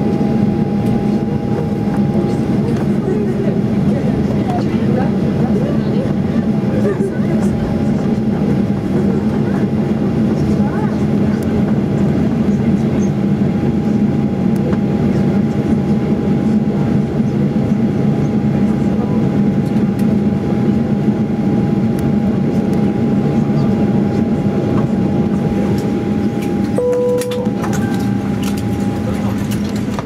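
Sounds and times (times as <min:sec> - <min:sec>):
jet engines idling rumble: 0:00.0 - 0:30.0
short chime: 0:26.8 - 0:28.6.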